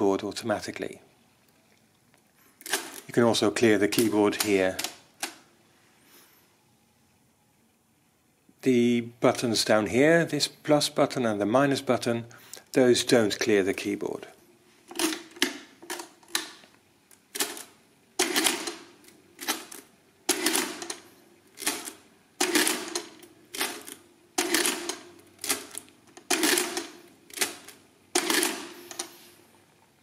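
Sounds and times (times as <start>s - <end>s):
mechanical calculator clattering: 17.3s - 29.2s.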